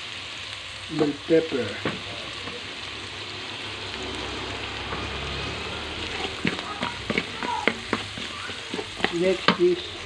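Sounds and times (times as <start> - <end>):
vegetables sizzling in hot oil: 0.0 - 10.0
wooden spatula scraping a pan: 4.8 - 10.0.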